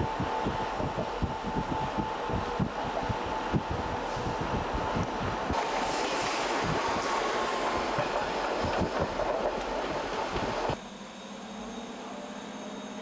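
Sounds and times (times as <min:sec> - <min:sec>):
train rattling: 0:00.0 - 0:11.0
thin steady squeal: 0:10.8 - 0:13.0.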